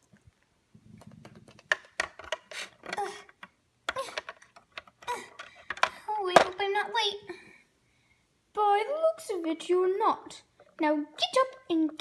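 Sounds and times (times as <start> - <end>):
plastic figurines clicking and knocking: 1.0 - 6.7.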